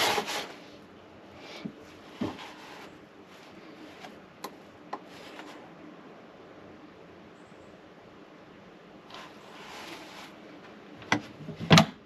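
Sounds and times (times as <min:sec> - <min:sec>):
soft scraping rustle: 0:00.0 - 0:00.8, 0:01.4 - 0:04.3, 0:05.0 - 0:05.8, 0:09.1 - 0:10.8.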